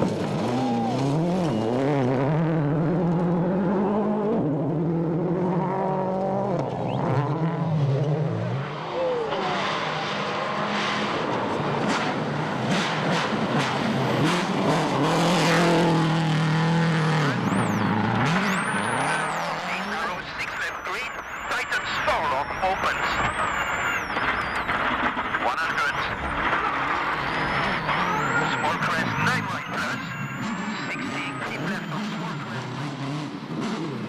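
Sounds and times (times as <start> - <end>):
rally car engine revving: 0.0 - 34.0
sharp cracks: 20.6 - 28.3.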